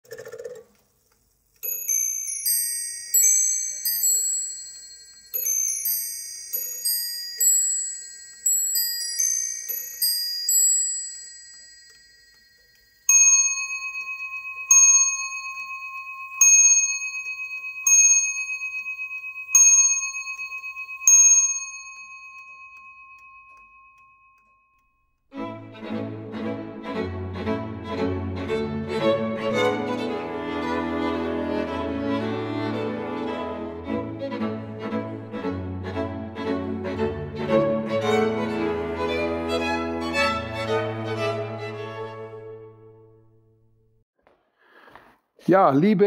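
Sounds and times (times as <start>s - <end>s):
carillon bells playing a tune: 1.6s - 24.8s
clock bell striking the hour: 1.6s - 24.9s.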